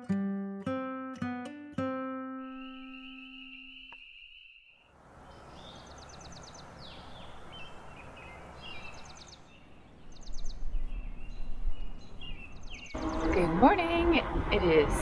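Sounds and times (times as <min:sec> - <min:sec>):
birds singing: 0:02.3 - 0:13.9
distant road traffic hum: 0:04.9 - 0:15.0.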